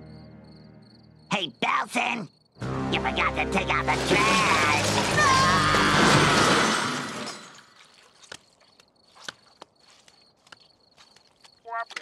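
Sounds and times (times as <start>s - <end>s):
cartoon trash crashing down: 3.7s - 7.7s.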